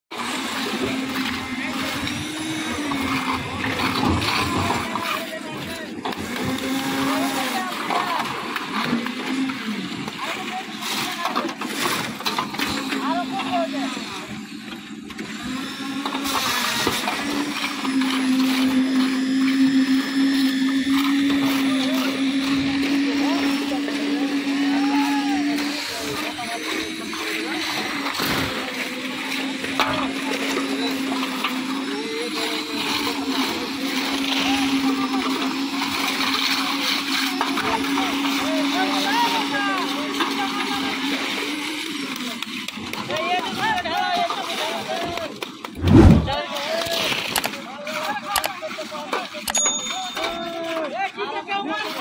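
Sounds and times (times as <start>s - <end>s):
concrete mixer churning: 0.1s - 49.5s
noisy jobsite background: 0.1s - 52.0s.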